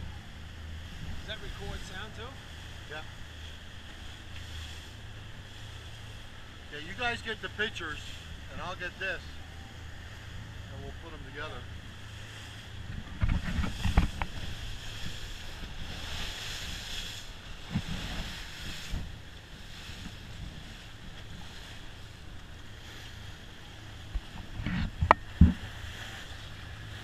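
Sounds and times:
boat engine drone: 0:00.0 - 0:27.0
rush of boat wake: 0:00.0 - 0:27.0
wind buffeting microphone: 0:12.0 - 0:27.0.

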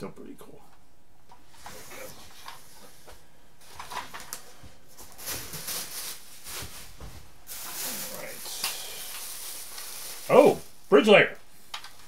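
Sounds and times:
plastic bag rustling: 0:03.6 - 0:10.9.

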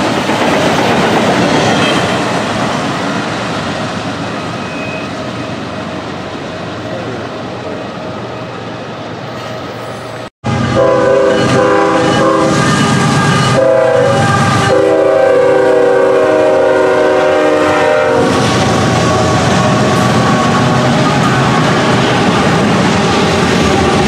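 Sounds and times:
train wheels on rails: 0:00.0 - 0:24.0
diesel locomotive rumble: 0:10.4 - 0:24.0
locomotive air horn blasts: 0:10.5 - 0:19.2.

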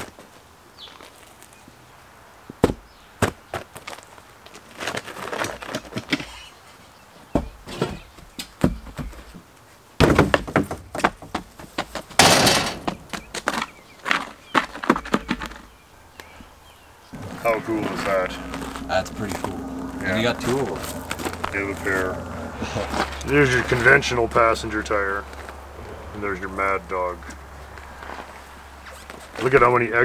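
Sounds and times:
knocks and clatter of objects: 0:10.0 - 0:15.7
loud scraping rush: 0:17.1 - 0:29.6.

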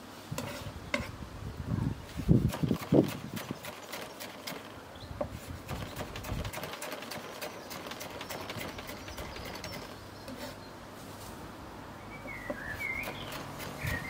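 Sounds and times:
birds calling: 0:02.7 - 0:10.8, 0:12.0 - 0:14.0.

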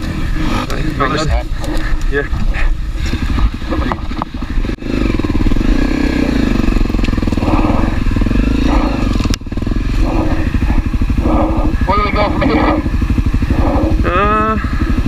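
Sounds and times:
dirt bike engine running: 0:00.0 - 0:15.0.

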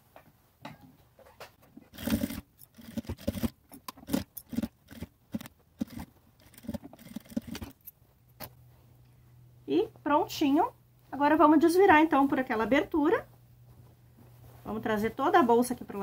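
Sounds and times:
sewing machine stitching: 0:01.8 - 0:07.9.

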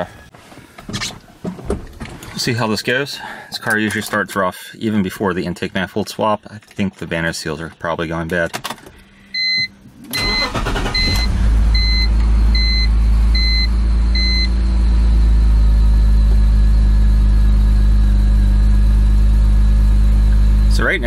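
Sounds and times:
car engine cranking and idling: 0:05.2 - 0:21.0
warning chime beeps: 0:09.3 - 0:14.6.

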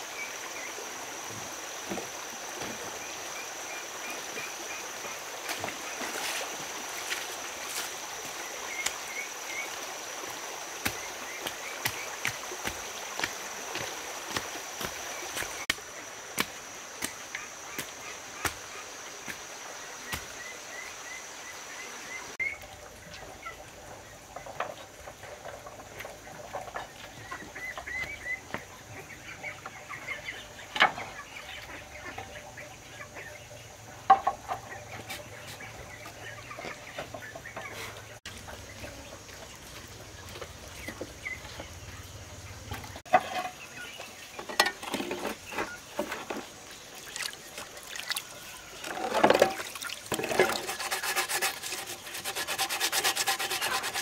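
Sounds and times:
chickens clucking: 0:22.4 - 0:39.5.

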